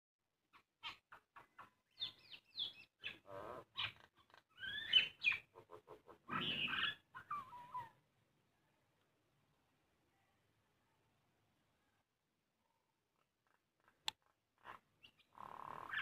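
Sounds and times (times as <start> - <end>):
myna bird calling: 0.6 - 8.0, 14.6 - 16.0.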